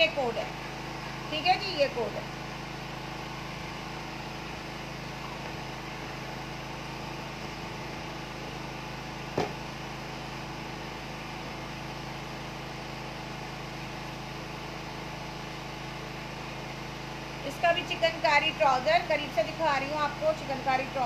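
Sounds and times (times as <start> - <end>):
steady background hum: 0.0 - 21.0.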